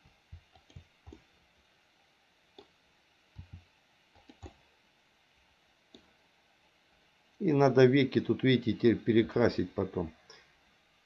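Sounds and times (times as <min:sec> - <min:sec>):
computer mouse clicks: 0:00.3 - 0:01.2, 0:03.4 - 0:03.6, 0:04.2 - 0:04.6.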